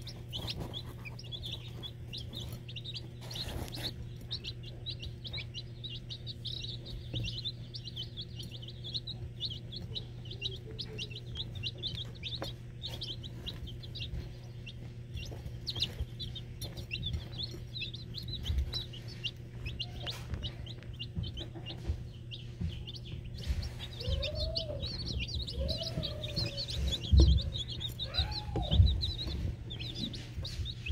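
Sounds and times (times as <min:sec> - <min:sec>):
chicks peeping: 0:00.0 - 0:30.9
steady low hum: 0:00.0 - 0:30.9.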